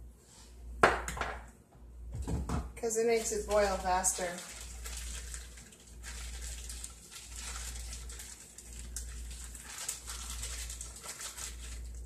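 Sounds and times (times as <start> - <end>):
plastic bag rustling and crinkling: 3.0 - 12.0.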